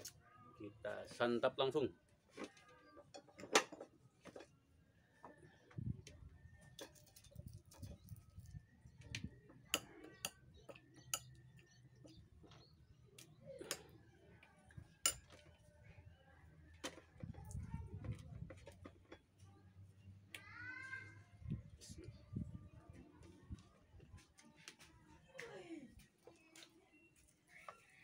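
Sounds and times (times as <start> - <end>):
spoon tapping a plate: 9.7 - 11.4, 15.1 - 15.4.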